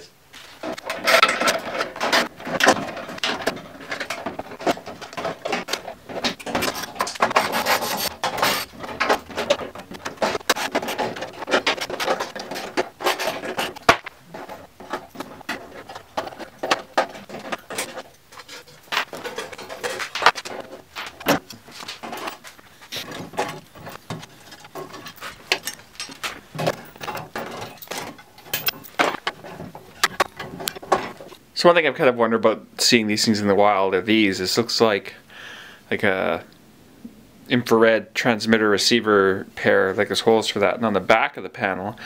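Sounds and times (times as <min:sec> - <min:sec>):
cables scraping and rubbing: 0:00.3 - 0:31.4.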